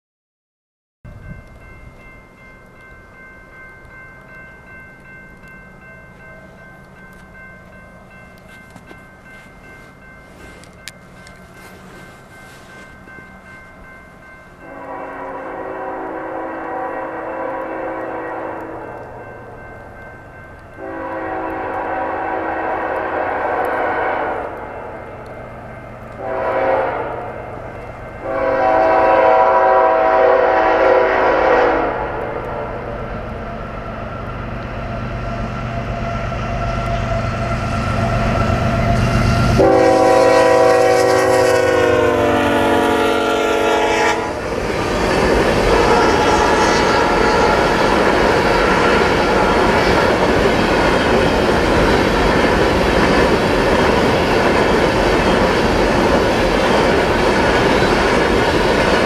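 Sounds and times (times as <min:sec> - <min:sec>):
freight train rumbling past: 0:01.1 - 0:59.0
locomotive horn blasts: 0:14.6 - 0:19.0, 0:20.8 - 0:24.6, 0:26.2 - 0:27.5, 0:28.2 - 0:32.9, 0:38.0 - 0:44.4, 0:45.7 - 0:47.7.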